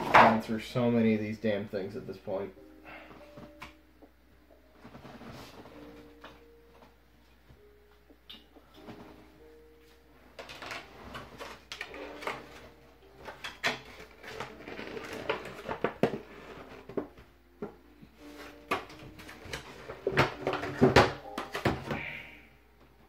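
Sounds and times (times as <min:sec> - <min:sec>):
packaging rustling: 0:10.4 - 0:17.2.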